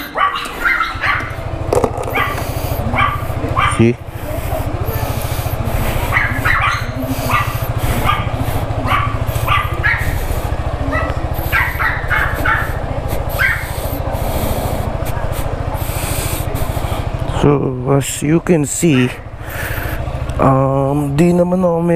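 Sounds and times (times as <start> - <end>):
dog barking: 0.0 - 1.5, 2.1 - 5.2, 5.9 - 14.0, 18.8 - 19.2
scooter engine idling: 0.0 - 21.9.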